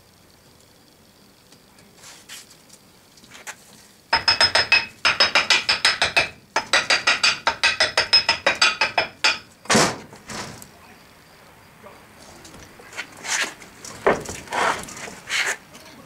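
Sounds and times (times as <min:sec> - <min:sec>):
metal-on-metal tapping: 0:04.1 - 0:09.5.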